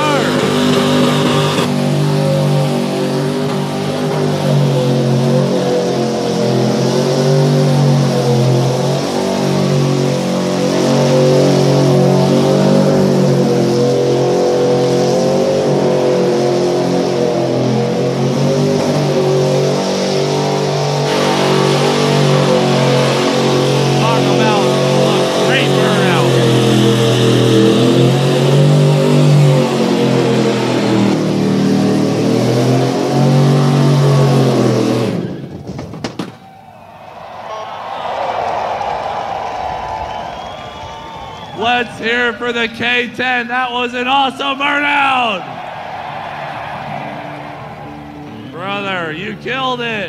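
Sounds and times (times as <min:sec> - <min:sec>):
engine at high revs: 0:00.0 - 0:35.6
spinning tire hissing: 0:00.0 - 0:35.6
tyres spinning on pavement: 0:21.0 - 0:42.0.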